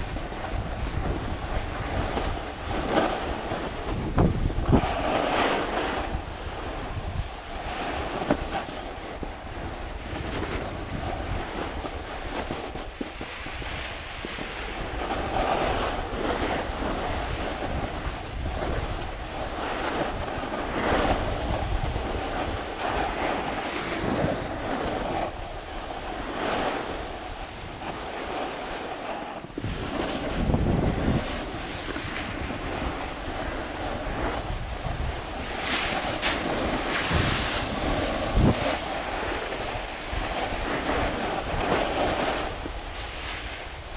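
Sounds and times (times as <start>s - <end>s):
snowboard scraping over snow: 0.0s - 43.9s
wind rushing over microphone: 0.0s - 43.9s.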